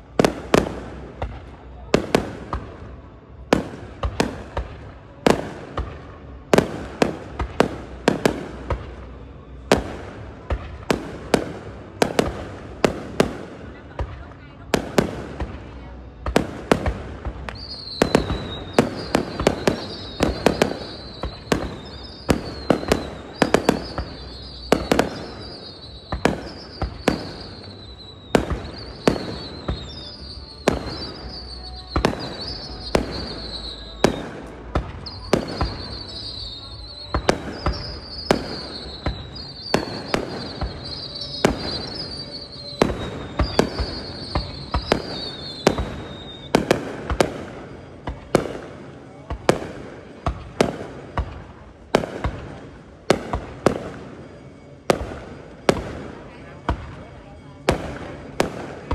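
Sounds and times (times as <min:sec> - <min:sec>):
high whistle: 0:17.5 - 0:34.4, 0:35.0 - 0:46.5.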